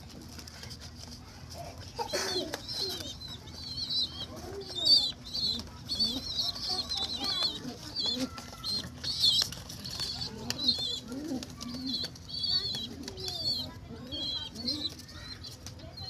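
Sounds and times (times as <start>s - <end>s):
pigeon calls: 0.0s - 16.0s
pigeon wings flapping: 0.0s - 16.0s
high-pitched bird chirps: 2.5s - 16.0s.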